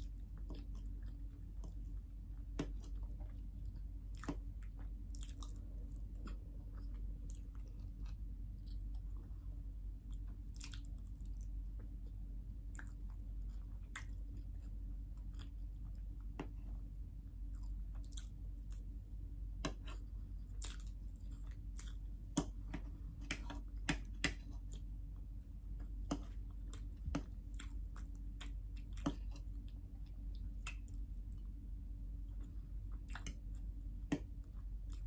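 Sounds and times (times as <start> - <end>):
mouth chewing with wet smacks: 0.0 - 9.4, 10.0 - 16.6, 17.4 - 19.0, 25.8 - 31.6, 32.3 - 35.0
steady low hum: 0.0 - 35.0.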